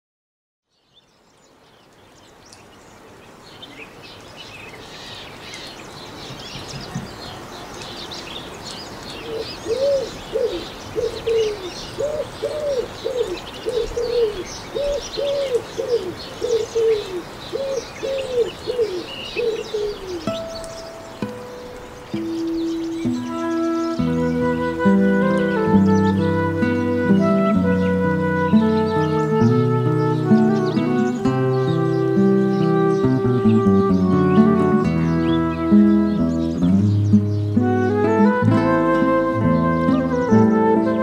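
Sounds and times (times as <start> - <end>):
small birds chirping: 0.7 - 41.0
bird low cooing calls: 9.1 - 41.0.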